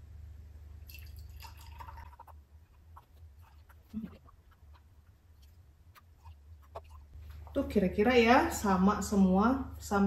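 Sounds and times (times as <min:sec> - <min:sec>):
steady low hum: 0:00.0 - 0:10.0
liquid pouring into glass jars: 0:00.8 - 0:04.4.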